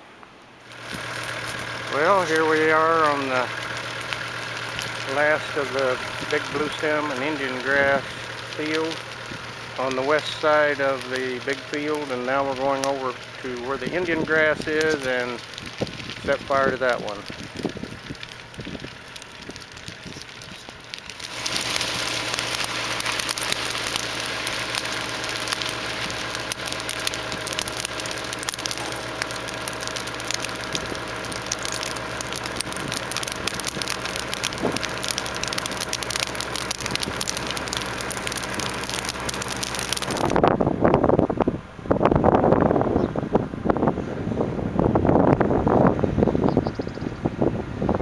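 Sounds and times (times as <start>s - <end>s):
grass fire crackling and popping: 0.0s - 44.0s, 44.6s - 48.0s
engine hum: 0.0s - 48.0s
wind buffeting microphone: 13.6s - 21.1s, 40.0s - 48.0s.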